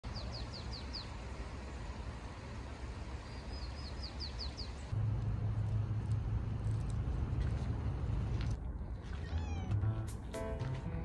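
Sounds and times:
songbird singing: 0.0s - 2.1s, 3.0s - 5.0s
low outdoor rumble: 0.0s - 11.0s.

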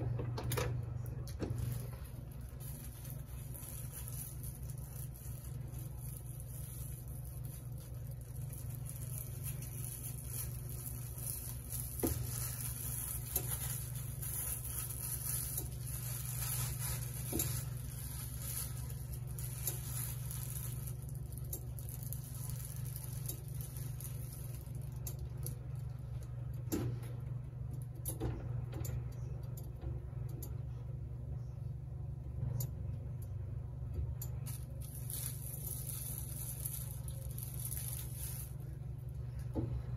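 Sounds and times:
steady low hum: 0.0s - 39.9s
plastic bag crinkling: 0.9s - 26.3s, 34.3s - 39.6s.

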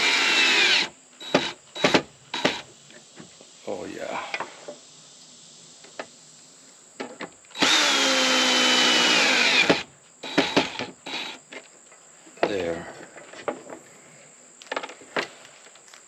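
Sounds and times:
cordless drill driving a screw: 0.0s - 2.6s, 7.5s - 11.4s.

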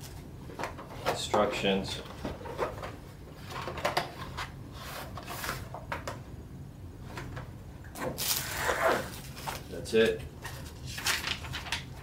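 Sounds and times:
packaging rustling: 10.4s - 12.0s.

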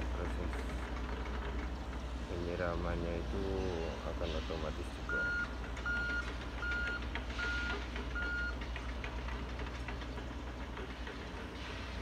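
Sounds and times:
low engine drone: 0.0s - 12.0s
excavator warning beeps: 5.0s - 8.6s.

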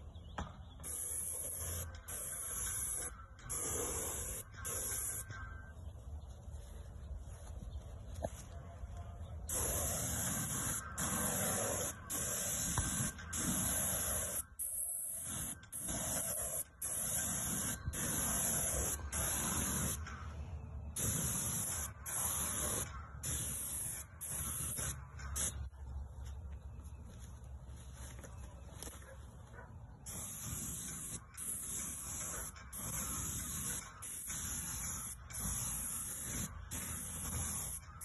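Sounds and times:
paint sprayer hissing: 0.8s - 5.4s, 9.5s - 20.1s, 21.0s - 25.7s, 30.1s - 38.0s.

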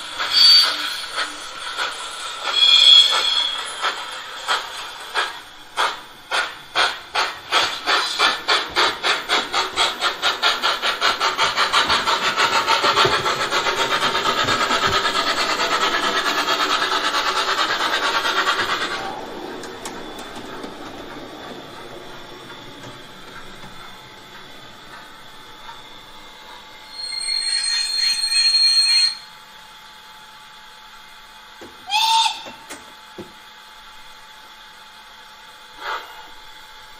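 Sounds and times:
model steam locomotive chuffs: 0.0s - 36.9s.

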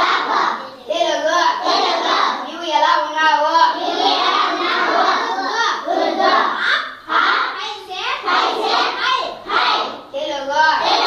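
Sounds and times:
children chanting in chorus: 0.0s - 11.0s.

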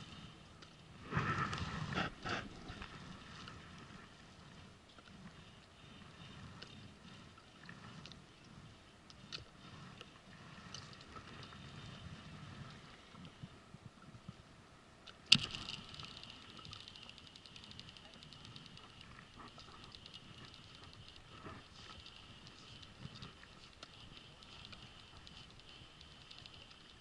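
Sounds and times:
water lapping against boat hull: 1.0s - 14.4s
faint clicks: 15.0s - 27.0s.

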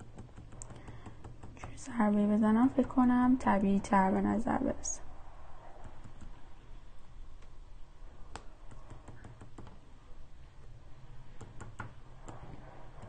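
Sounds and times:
stylus tapping on touchscreen: 0.0s - 1.9s, 8.2s - 9.8s, 11.3s - 13.0s.

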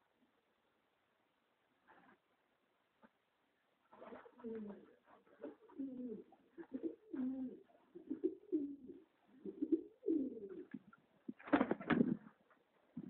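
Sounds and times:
pigeons cooing: 4.2s - 11.0s.

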